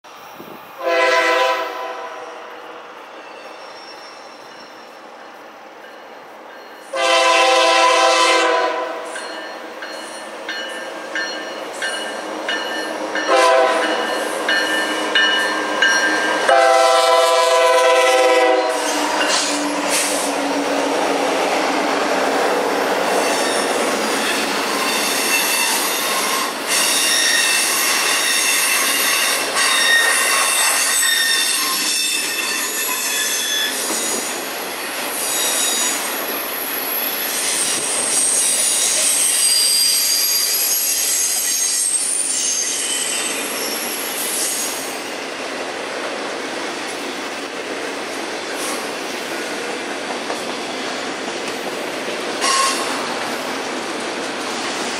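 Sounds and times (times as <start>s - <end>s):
locomotive horn blasts: 0.8s - 2.5s, 6.9s - 9.2s, 13.3s - 14.1s, 16.4s - 19.4s
wheels squealing: 3.1s - 5.0s
train wheel noise: 3.1s - 54.9s.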